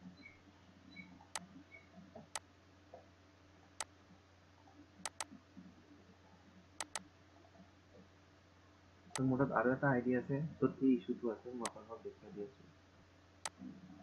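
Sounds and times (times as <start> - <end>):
faint steady hum: 0.0 - 14.0
computer mouse clicking: 5.0 - 5.4, 6.8 - 7.1, 13.4 - 13.7.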